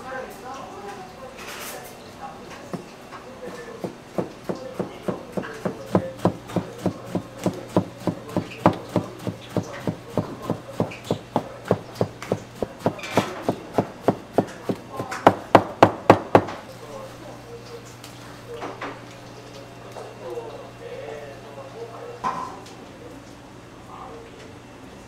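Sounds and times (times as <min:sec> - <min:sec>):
knife knocking on cutting board: 0:03.8 - 0:16.6.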